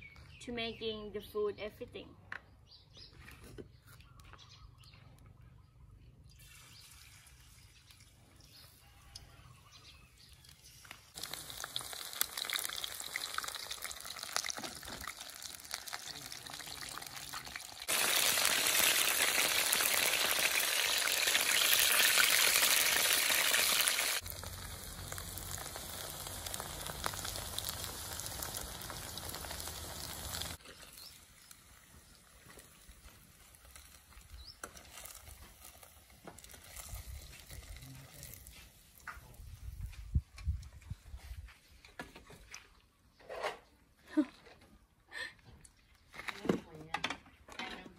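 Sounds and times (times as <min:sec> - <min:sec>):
food sizzling in hot oil: 0:10.9 - 0:37.8.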